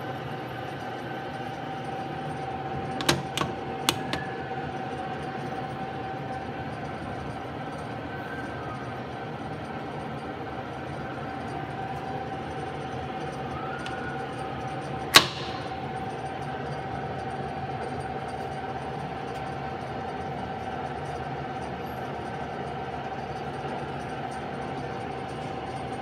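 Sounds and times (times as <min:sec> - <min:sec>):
lathe running with whine: 0:00.0 - 0:26.0
sharp metallic click: 0:15.0 - 0:16.2.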